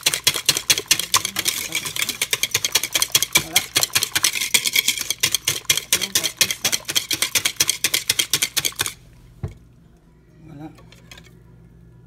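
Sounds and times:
whisk clicking against bowl: 0.0 - 9.0.

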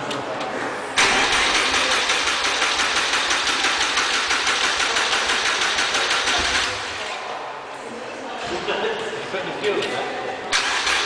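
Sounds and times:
starter motor cranking engine: 1.0 - 7.0, 10.5 - 11.0.

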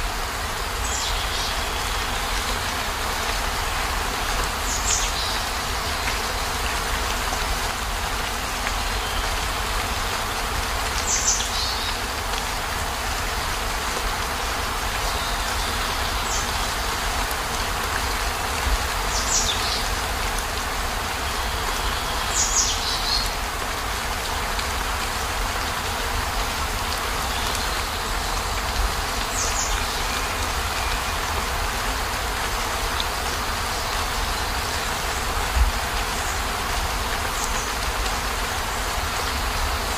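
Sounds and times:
steady rain hiss: 0.0 - 39.9.

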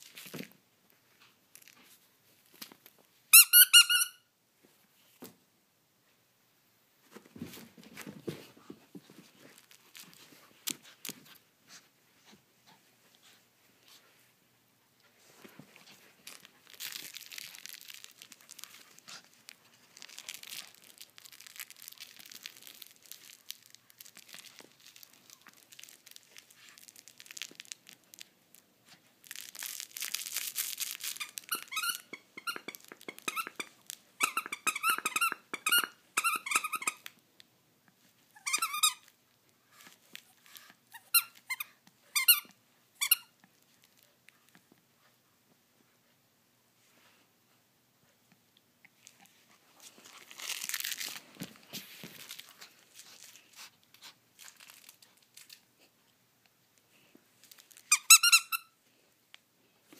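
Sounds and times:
toy squeaker squeaking: 3.4 - 4.2, 31.5 - 37.1, 57.9 - 58.7
plush toy rustling: 7.0 - 36.9, 49.0 - 56.0, 57.0 - 58.6.

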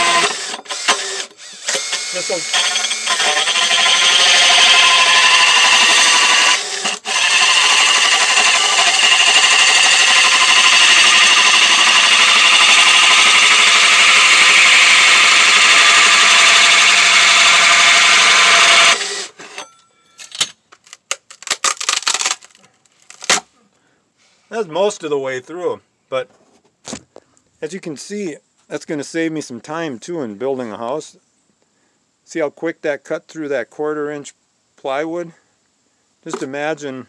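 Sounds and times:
cordless drill sawing plywood: 0.0 - 19.6.

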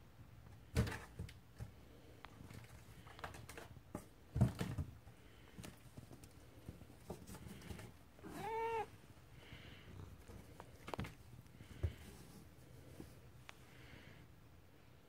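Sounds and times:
cat meowing: 8.2 - 8.9.

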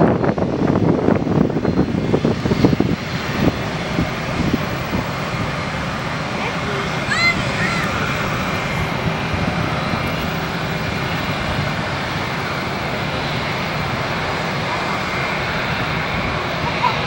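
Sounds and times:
jet engines running: 0.0 - 17.0.

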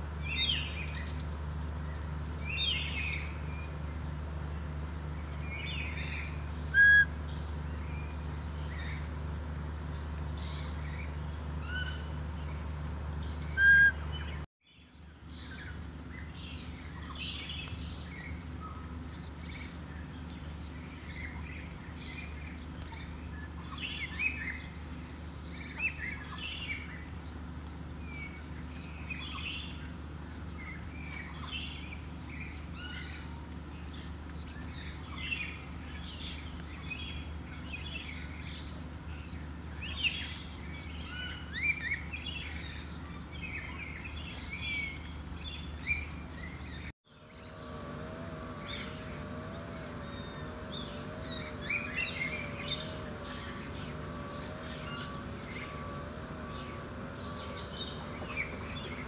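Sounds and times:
small birds chirping: 0.0 - 59.0
high-pitched hum: 39.1 - 59.0.

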